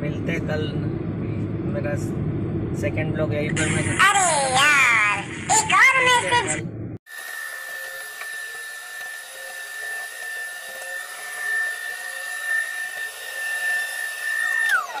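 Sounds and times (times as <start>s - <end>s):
electric motor whining: 7.1s - 15.0s.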